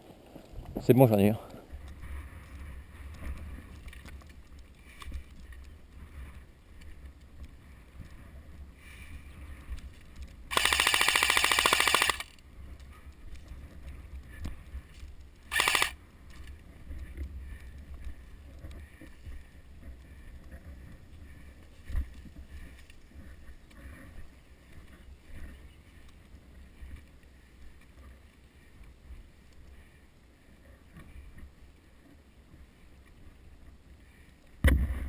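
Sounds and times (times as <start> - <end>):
wind rumble on microphone: 0.0 - 10.5
airsoft gun rapid bursts: 10.5 - 12.4, 15.5 - 16.0.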